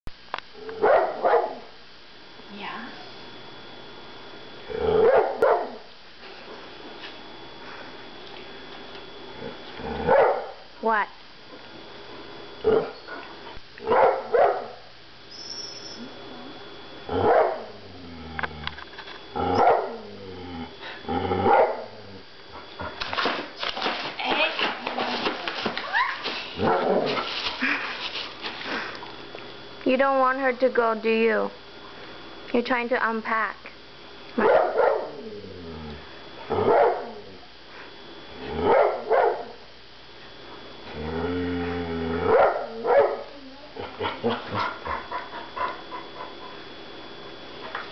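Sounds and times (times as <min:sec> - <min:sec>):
dog barking: 0:00.8 - 0:01.7, 0:05.0 - 0:05.9, 0:10.1 - 0:10.6, 0:13.8 - 0:14.8, 0:17.2 - 0:17.7, 0:19.6 - 0:20.0, 0:21.5 - 0:21.9, 0:26.6 - 0:27.0, 0:34.4 - 0:35.2, 0:36.6 - 0:37.2, 0:38.7 - 0:39.6, 0:42.3 - 0:43.3.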